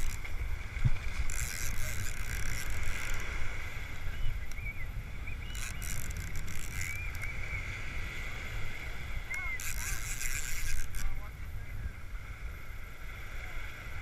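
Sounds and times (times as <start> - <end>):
fishing reel cranking: 0.0 - 3.7, 5.5 - 7.4, 9.3 - 11.2
wind buffeting microphone: 0.0 - 12.6
surf rumble: 0.0 - 14.0.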